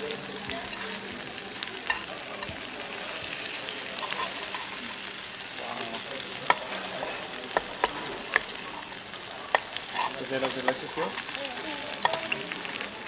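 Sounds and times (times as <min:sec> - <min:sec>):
meat sizzling on hot plate: 0:00.0 - 0:13.0
cutlery clinking on plate: 0:01.8 - 0:02.6, 0:04.0 - 0:05.0, 0:06.4 - 0:08.6, 0:09.5 - 0:11.0.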